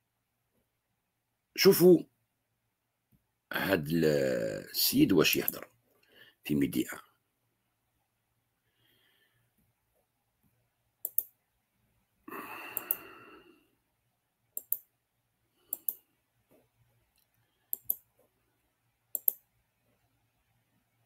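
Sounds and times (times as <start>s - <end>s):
computer mouse clicks: 11.0s - 11.4s, 12.7s - 13.0s, 14.6s - 14.9s, 15.7s - 16.0s, 17.1s - 18.2s, 19.1s - 19.4s.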